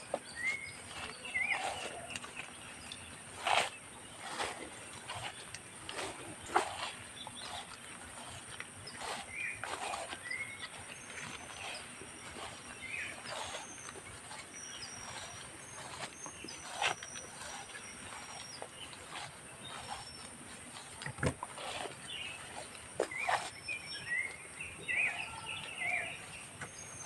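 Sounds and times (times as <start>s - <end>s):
bird chirps: 0.0s - 20.9s, 21.6s - 27.0s
footsteps in grassy undergrowth: 0.0s - 27.0s.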